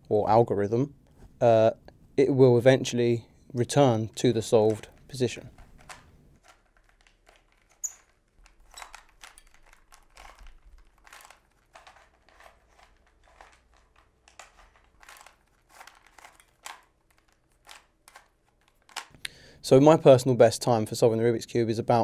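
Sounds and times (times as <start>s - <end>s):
plastic puzzle cube clicks: 4.7s - 19.3s.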